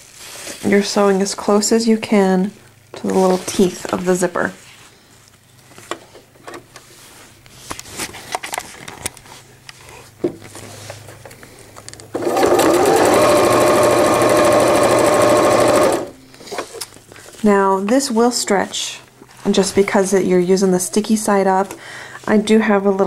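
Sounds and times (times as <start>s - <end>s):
sewing machine stitching: 12.2s - 16.2s.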